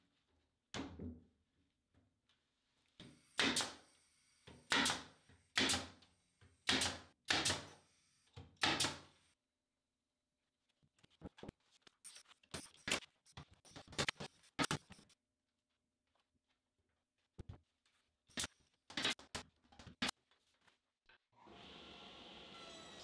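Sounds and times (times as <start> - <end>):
nail gun shots: 3.4 - 3.8, 4.7 - 6.0, 6.6 - 7.7, 8.6 - 9.1.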